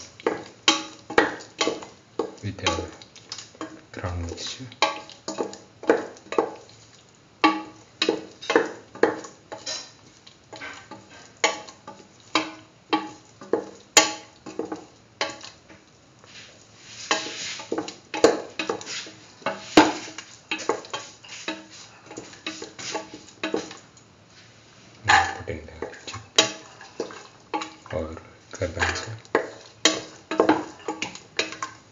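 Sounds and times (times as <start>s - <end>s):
spatula scraping metal pan: 7.4s - 15.5s, 16.3s - 23.8s, 25.1s - 27.9s, 28.7s - 31.8s.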